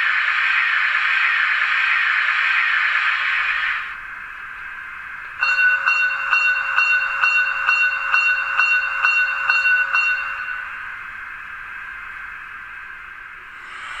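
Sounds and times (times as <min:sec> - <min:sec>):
faint steady hiss: 0:03.5 - 0:14.0
locomotive bell ringing: 0:03.9 - 0:13.9.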